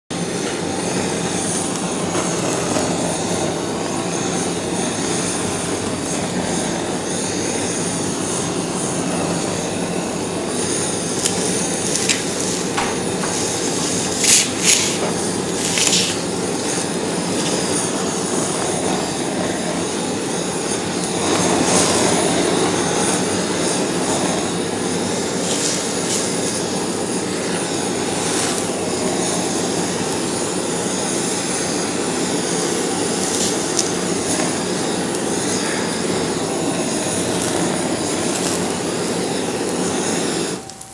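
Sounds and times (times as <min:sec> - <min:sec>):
butane torch flame hissing: 0:00.0 - 0:40.9
sharp clicks and crackles: 0:10.7 - 0:19.1, 0:33.0 - 0:35.4.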